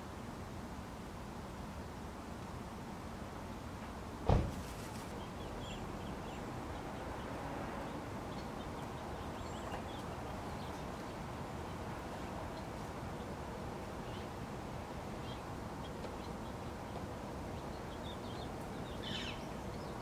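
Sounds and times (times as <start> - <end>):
steady outdoor hiss: 0.0 - 20.0
small birds chirping: 4.8 - 20.0.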